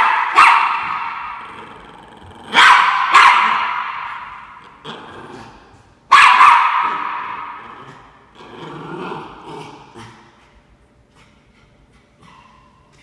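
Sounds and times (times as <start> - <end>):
dog barking: 0.0 - 1.1, 2.5 - 4.0, 6.1 - 7.2.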